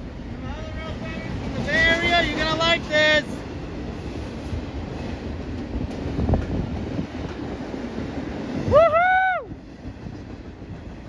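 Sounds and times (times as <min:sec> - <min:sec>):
train wheels rumbling on rail: 0:00.0 - 0:11.0
wind on microphone: 0:04.0 - 0:11.0
man whooping: 0:08.6 - 0:09.6.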